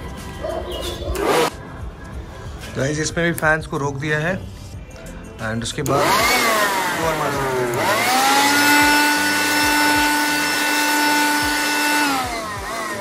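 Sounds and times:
electric air blower motor whine: 5.9s - 13.0s.

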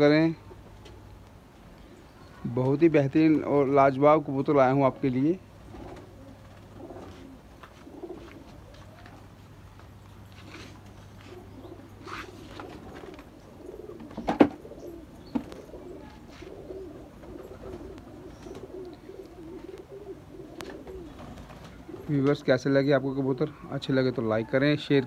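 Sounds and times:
pigeons cooing: 4.9s - 9.6s, 10.2s - 25.0s.

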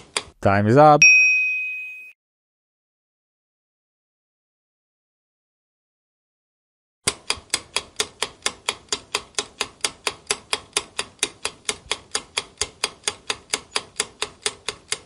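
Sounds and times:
clock-like ticking: 0.0s - 0.4s, 7.0s - 15.0s.

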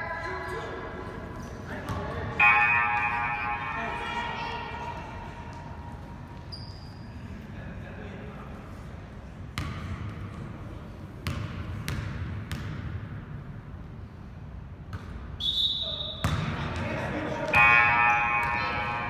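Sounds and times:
basketball bouncing on gym floor: 9.6s - 10.3s, 11.2s - 13.2s, 16.2s - 16.9s.

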